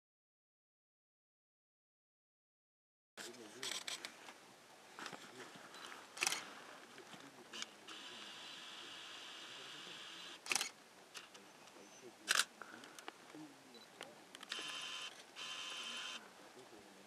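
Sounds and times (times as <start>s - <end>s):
camera motor whirring: 6.2s - 6.5s, 7.6s - 11.3s, 14.4s - 16.2s
camera shutter clicks: 6.2s - 6.5s, 10.0s - 11.3s, 12.3s - 12.5s, 14.4s - 16.2s.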